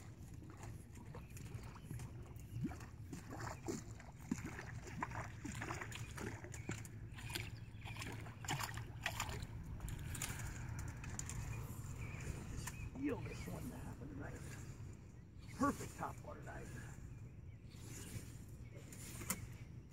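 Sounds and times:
small plops and gurgles on water: 0.0 - 13.0.

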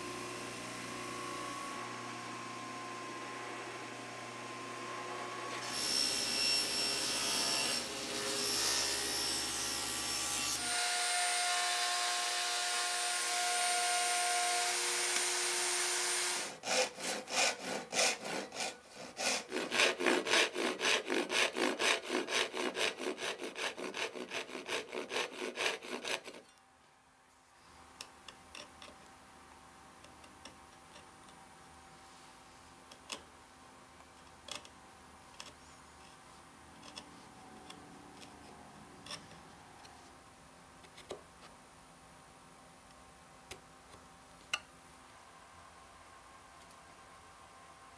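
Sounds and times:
handsaw cutting wood: 5.5 - 26.5
power tool running: 11.5 - 19.3.

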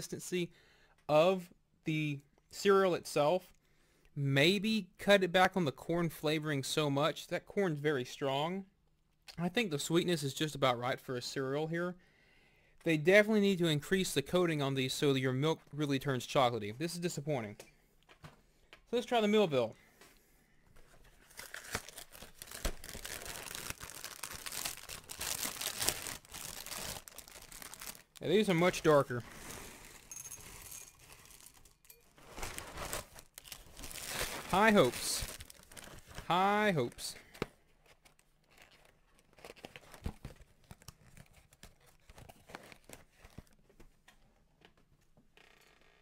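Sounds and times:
plastic bag crinkling: 21.2 - 36.4.

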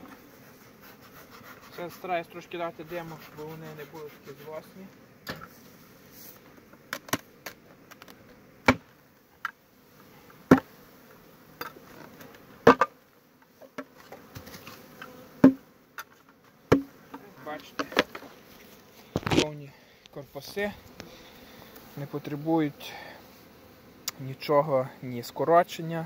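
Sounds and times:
honeybees buzzing: 0.0 - 26.0
wooden hive boxes knocking: 10.5 - 10.7, 11.6 - 13.0, 15.4 - 18.4.

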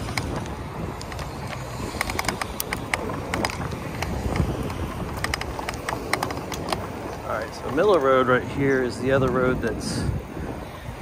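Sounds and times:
sharp clicks and rattles: 0.0 - 9.9
road traffic passing: 0.0 - 11.0
wind buffeting microphone: 0.0 - 11.0.

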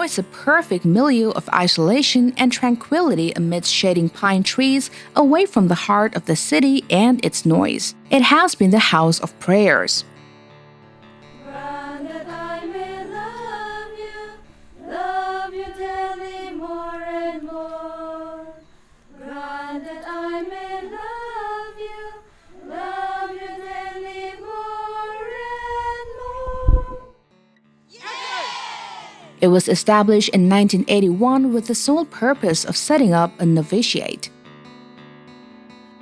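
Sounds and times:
women singing slow melody: 11.4 - 27.2.

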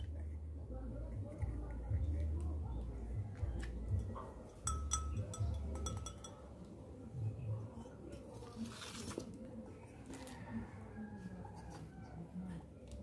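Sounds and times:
ceramic pot clinking: 3.5 - 6.7.

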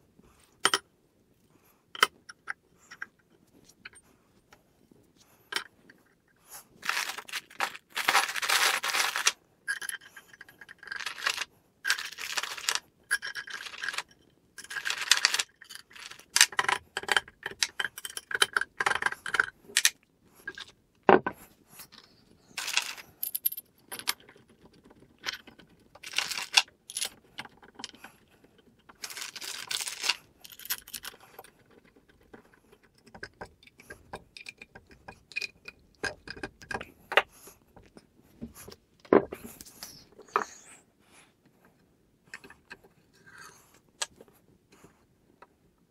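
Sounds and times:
plastic bags crinkling: 6.8 - 9.4, 10.9 - 12.8, 22.5 - 23.2, 26.0 - 27.1, 29.0 - 30.9
screws jingling and clinking: 6.8 - 19.9, 22.6 - 28.2, 28.9 - 32.6
metal parts scraped: 22.5 - 24.1.

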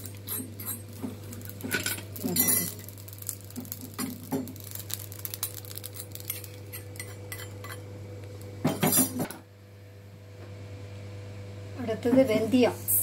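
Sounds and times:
spoon scraping in iron pan: 0.0 - 2.8, 5.4 - 7.8
seeds crackling: 0.0 - 7.2.

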